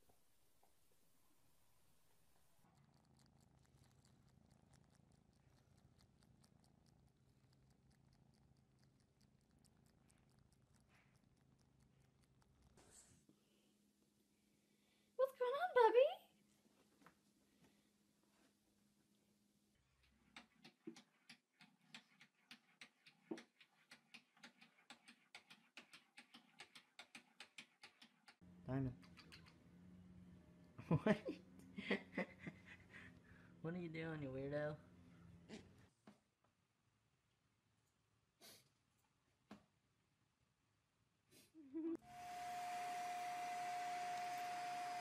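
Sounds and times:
kitten purring: 2.6 - 13.6
kitten mouth clicks: 28.9 - 29.6.

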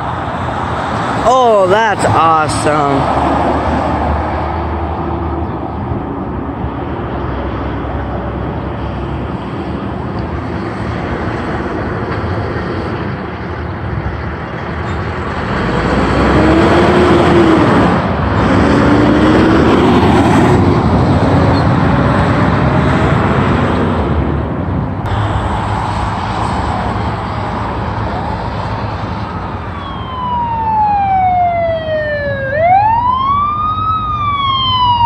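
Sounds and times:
cars driving past: 0.0 - 35.0
vehicle accelerating past: 15.1 - 24.4.

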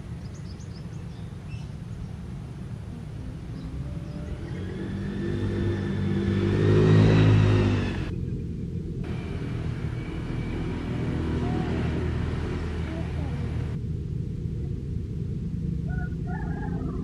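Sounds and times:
traffic rumble: 0.0 - 17.0
vehicle passing by: 2.5 - 13.8.

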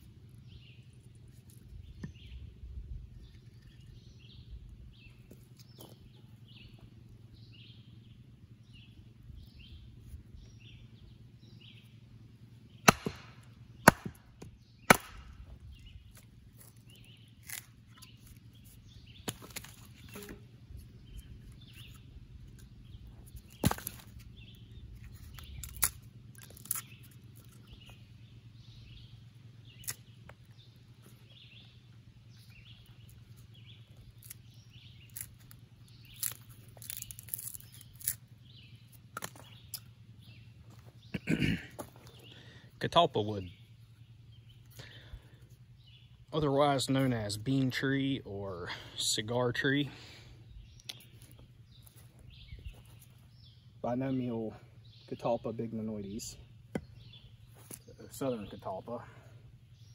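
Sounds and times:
bird chirping: 0.0 - 59.9.

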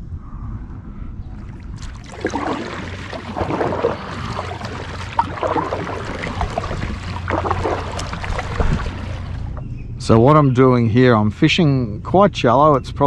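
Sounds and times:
kayak paddle splashing: 1.4 - 9.6
water trickling off paddle: 1.4 - 9.6.

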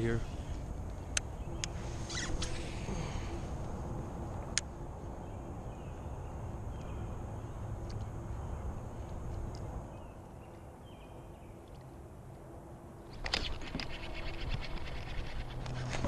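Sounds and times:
faint chirps: 0.0 - 3.5.

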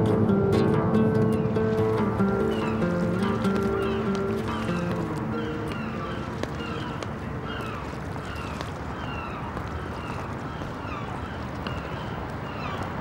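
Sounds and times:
distant city noise: 0.0 - 13.0
seagulls calling: 0.0 - 13.0
water washing: 1.6 - 11.2.

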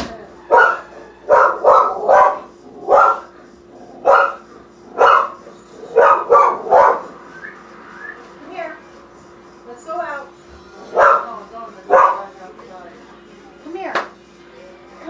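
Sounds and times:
dog barking: 0.4 - 3.4, 4.0 - 7.2, 10.9 - 12.3.

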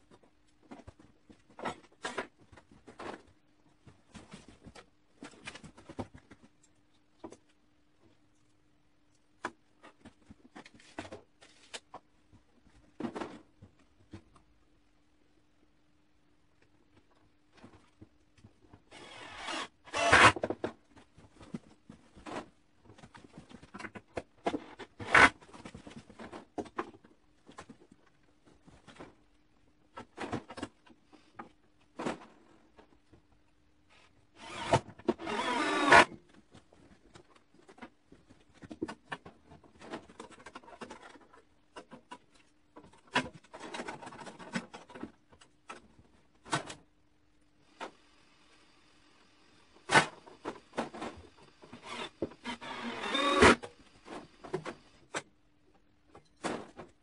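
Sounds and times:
power driver driving screws: 18.9 - 20.4, 34.4 - 36.1, 51.7 - 53.7.

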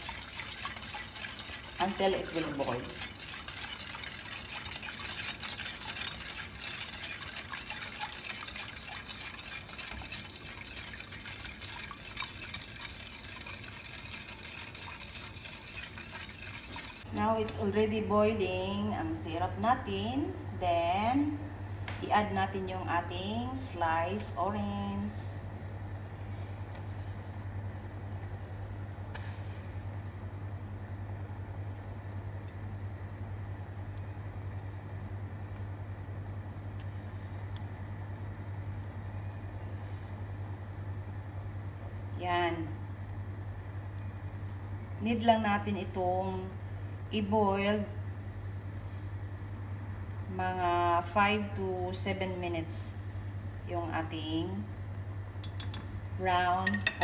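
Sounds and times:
heating syrup hissing: 0.0 - 17.1
whisk scraping metal pot: 0.0 - 17.1
low steady hum: 0.0 - 57.0.

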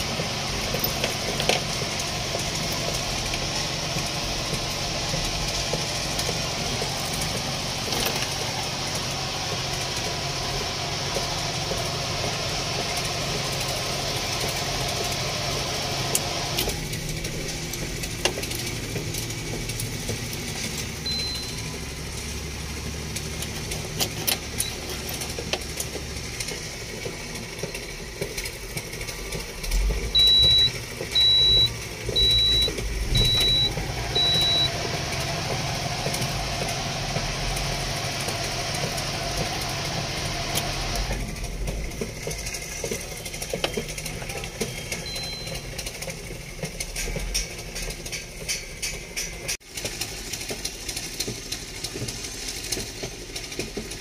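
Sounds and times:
diesel engine running: 0.0 - 54.0
short high-pitched electronic beeps: 21.1 - 21.7, 30.2 - 34.8, 44.8 - 45.8.

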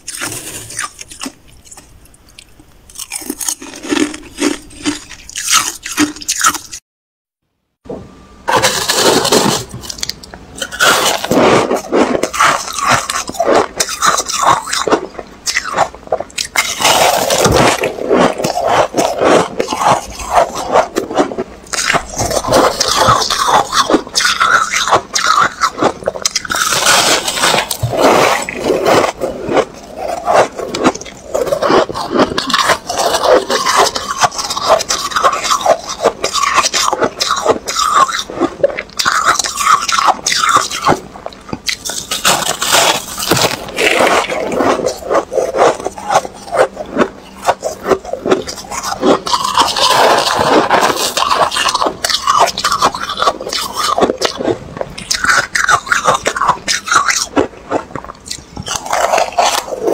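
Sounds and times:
spoon scraping frost in plastic bowl: 0.0 - 1.8, 8.5 - 14.9, 16.6 - 38.3
crunching and chewing: 0.0 - 6.8, 8.5 - 59.9.

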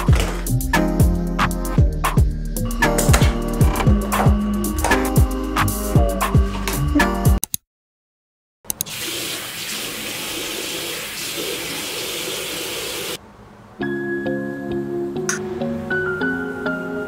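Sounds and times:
background music: 0.0 - 7.4, 13.8 - 17.0.

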